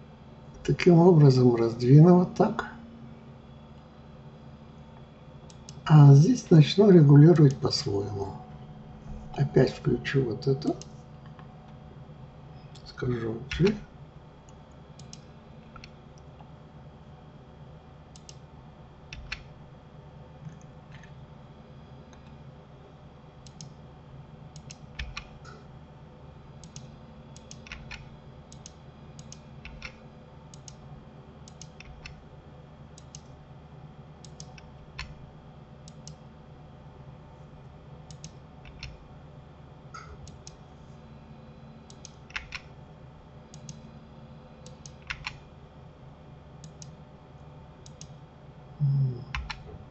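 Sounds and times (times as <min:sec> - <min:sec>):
steady low hum: 0:00.0 - 0:49.9
mouse and keyboard clicks: 0:26.6 - 0:30.0, 0:38.1 - 0:39.0, 0:41.9 - 0:42.7, 0:44.6 - 0:45.4.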